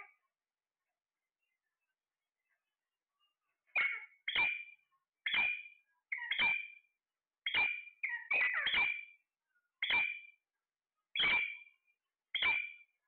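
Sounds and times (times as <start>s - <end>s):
parakeet calling: 7.5s - 9.0s.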